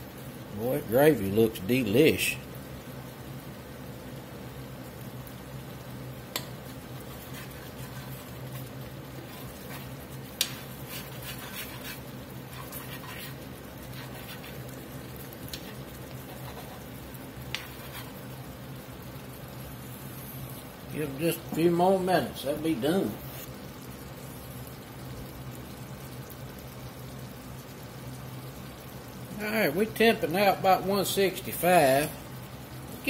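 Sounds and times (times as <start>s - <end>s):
gravy simmering: 0.0s - 33.0s
steady low hum: 0.0s - 33.0s
spoon stirring gravy in a skillet: 6.2s - 21.8s.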